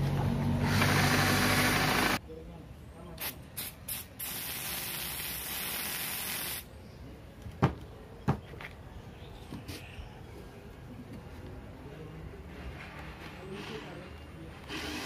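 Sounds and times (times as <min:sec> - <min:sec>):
aerosol spray can hissing: 0:03.2 - 0:06.6.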